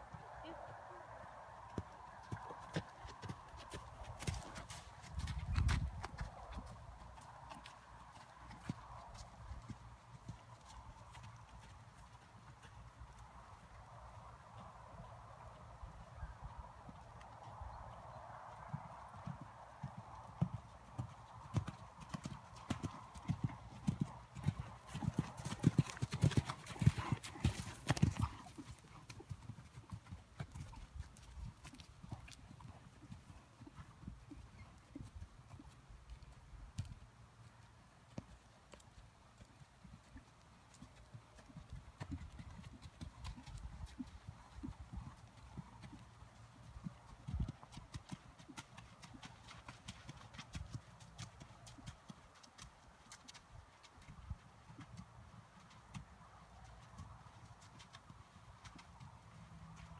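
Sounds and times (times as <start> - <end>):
horse hoofbeats on wet sand: 2.3 - 12.3, 19.9 - 34.2.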